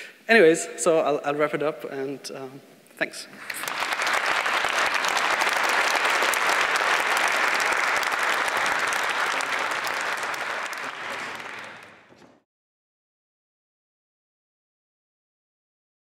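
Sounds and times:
audience applauding: 3.4 - 12.3.

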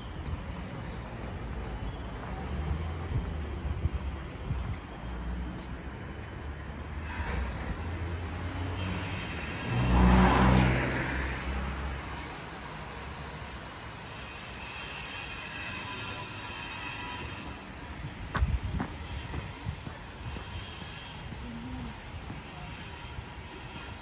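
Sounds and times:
vehicle passing close by: 7.0 - 13.2.

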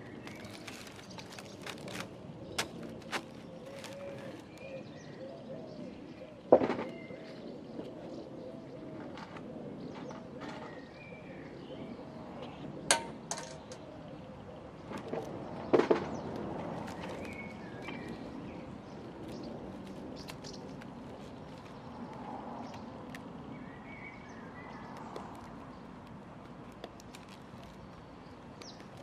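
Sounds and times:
birds calling: 0.0 - 8.8, 12.5 - 29.0.

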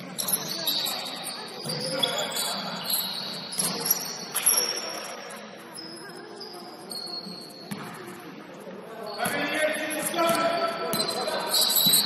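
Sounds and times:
shoes squeaking on gym floor: 0.0 - 8.2, 9.0 - 12.0.

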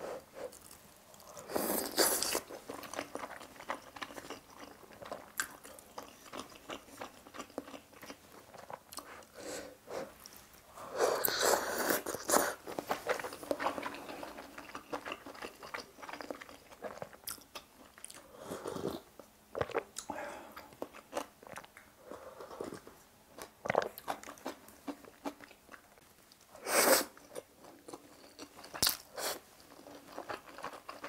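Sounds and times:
wet chewing and lip-smacking: 2.0 - 9.3, 12.0 - 18.2.

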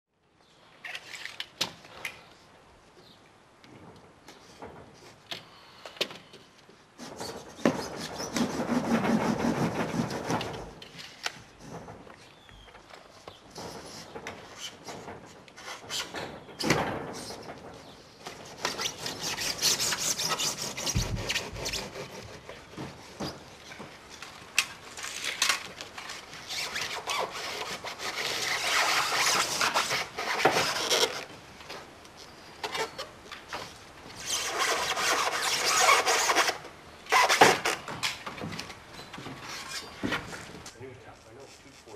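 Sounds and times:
scratchy rubbing on foam: 7.0 - 10.3, 18.5 - 23.4
blade scraping polystyrene foam: 7.0 - 10.6, 18.3 - 23.5, 24.9 - 31.3, 34.2 - 37.8.

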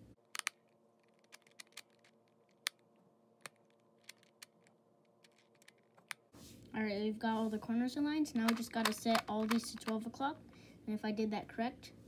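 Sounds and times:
puzzle dials clicking: 0.3 - 2.8, 3.4 - 6.2, 8.3 - 10.1.

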